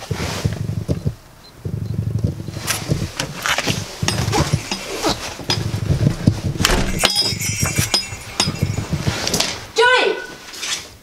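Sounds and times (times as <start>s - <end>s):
keys jingling: 3.3s - 9.6s.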